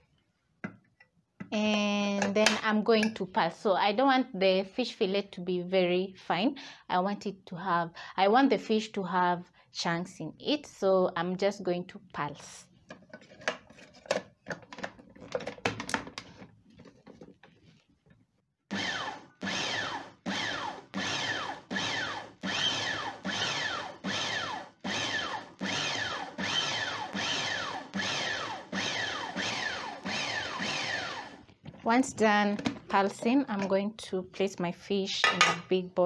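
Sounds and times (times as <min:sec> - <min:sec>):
food processor pulsing: 0:18.7 - 0:31.5.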